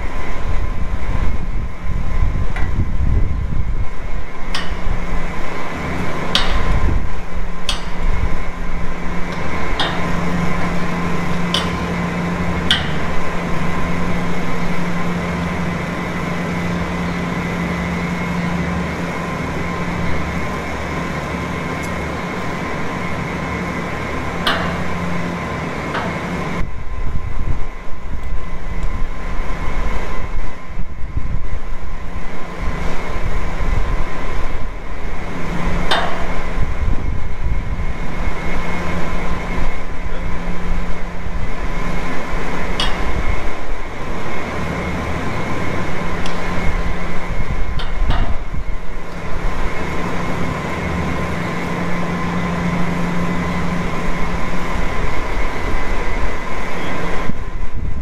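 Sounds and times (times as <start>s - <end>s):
circulation fans humming: 0.0s - 58.0s
sharp knocks and clinks: 11.5s - 12.0s.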